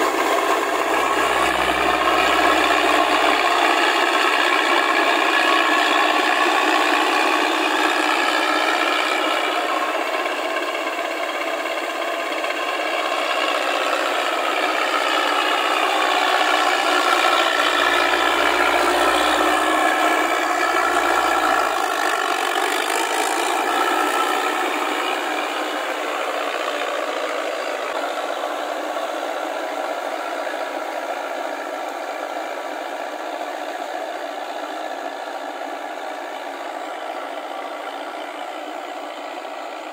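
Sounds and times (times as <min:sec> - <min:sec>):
steel tracks rattling: 0:00.0 - 0:10.8, 0:12.8 - 0:27.8
rotary tiller churning wet mud: 0:00.0 - 0:31.2
tractor engine running under load: 0:00.0 - 0:39.9.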